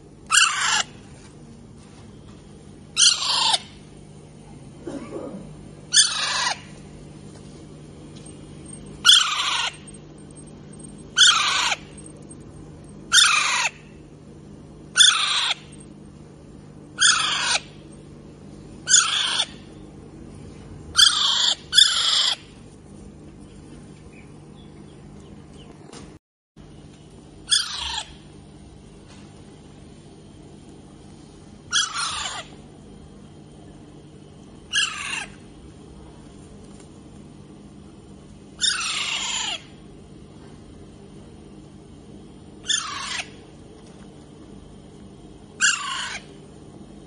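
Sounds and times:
parakeet calling: 0:00.3 - 0:00.9, 0:03.0 - 0:03.8, 0:05.9 - 0:06.8, 0:08.6 - 0:14.0, 0:14.9 - 0:15.9, 0:17.0 - 0:17.8, 0:18.8 - 0:19.7, 0:21.0 - 0:22.5, 0:27.5 - 0:28.2, 0:31.7 - 0:32.6, 0:34.7 - 0:35.4, 0:38.6 - 0:39.8, 0:42.6 - 0:43.4, 0:45.6 - 0:46.4.

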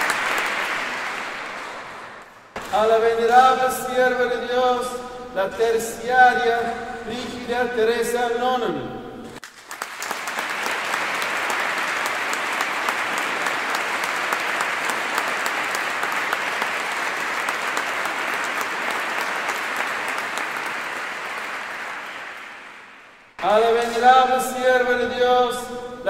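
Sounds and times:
crowd applauding: 0:00.0 - 0:03.0, 0:09.4 - 0:24.0.

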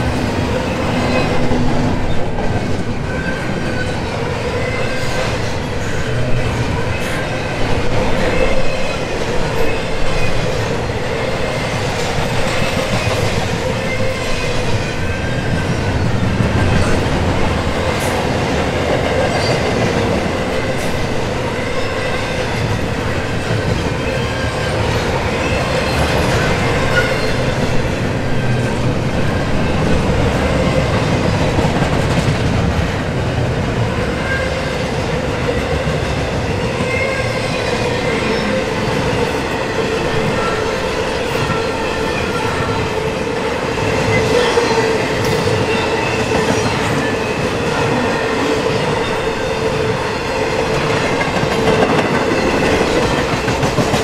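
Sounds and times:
freight train wheels clattering: 0:35.0 - 0:54.0.

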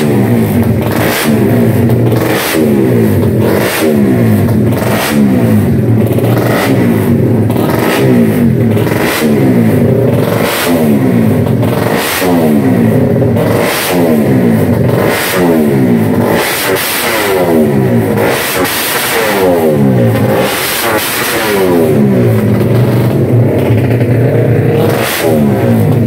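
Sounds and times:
motorcycle engine revving: 0:00.0 - 0:26.0.

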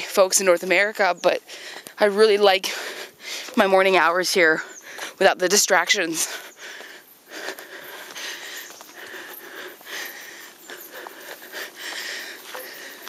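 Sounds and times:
light footsteps on trail: 0:00.0 - 0:13.0
person breathing hard: 0:01.4 - 0:02.0, 0:02.6 - 0:03.6, 0:06.2 - 0:13.0.

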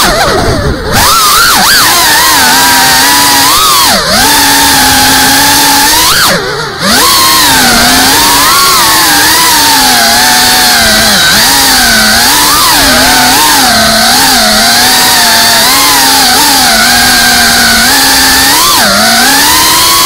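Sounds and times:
drone motors and propellers whining: 0:00.0 - 0:20.0.

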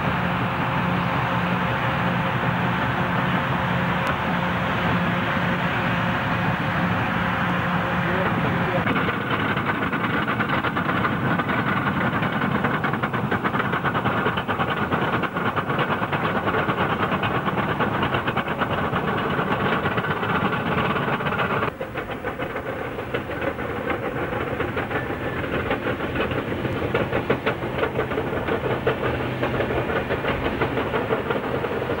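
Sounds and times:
heavy diesel machinery under load: 0:00.0 - 0:32.0
rapid clatter: 0:06.4 - 0:32.0.

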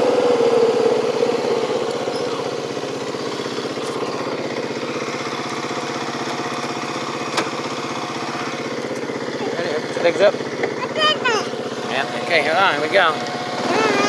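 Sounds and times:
atv engine running: 0:00.0 - 0:14.0.

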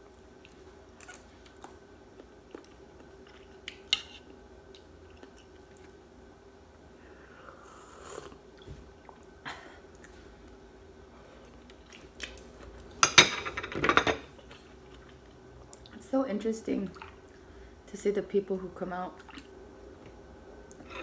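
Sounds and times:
chewing: 0:00.4 - 0:06.0.

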